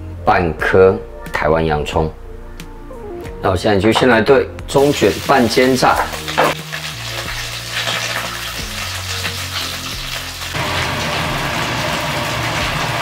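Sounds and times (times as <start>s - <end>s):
background music: 0.0s - 13.0s
squid sizzling in hot oil: 4.8s - 13.0s.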